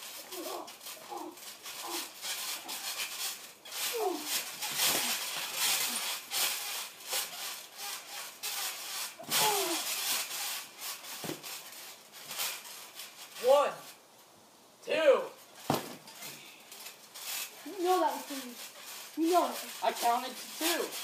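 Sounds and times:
thumps on trampoline: 0.1 - 13.0, 15.6 - 17.5.

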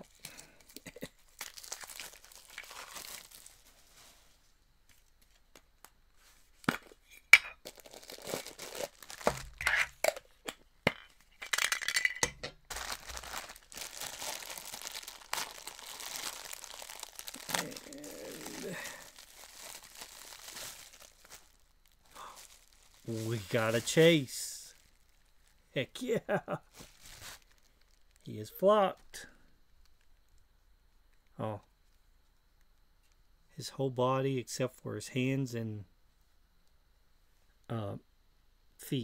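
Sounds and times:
plastic wrapping crinkling: 0.0 - 10.4, 12.6 - 25.6, 26.6 - 28.3.

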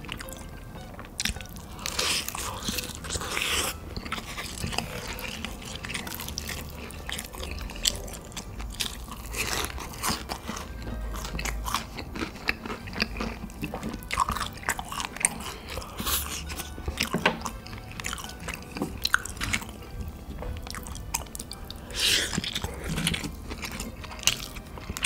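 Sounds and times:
person chewing crunchy food: 0.0 - 25.0.

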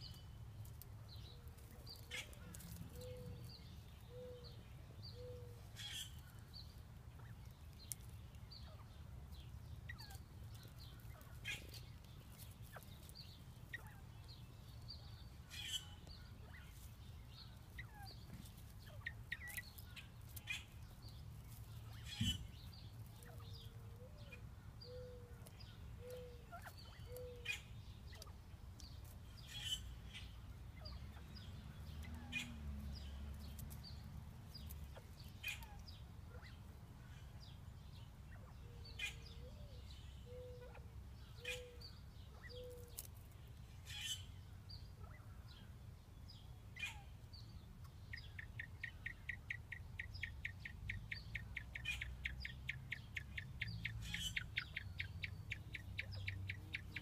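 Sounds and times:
light clicks in wood shavings: 0.0 - 4.1, 6.2 - 8.5, 10.1 - 14.9, 16.0 - 24.1, 25.3 - 27.4, 28.1 - 29.2, 32.8 - 35.9, 42.6 - 43.7.

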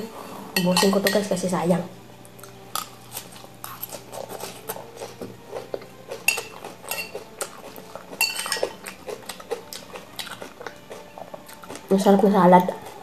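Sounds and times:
metal spoon scraping ceramic bowl: 6.3 - 7.2.

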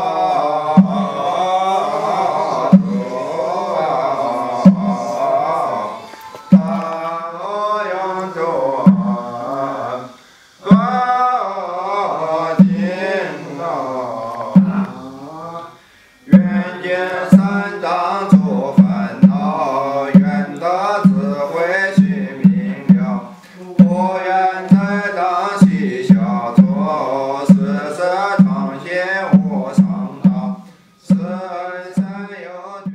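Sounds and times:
person chanting: 0.0 - 32.9
steady low beat: 0.7 - 5.8, 6.5 - 7.2, 8.7 - 9.5, 12.6 - 13.1, 14.5 - 15.1, 16.2 - 21.4, 22.0 - 32.3.

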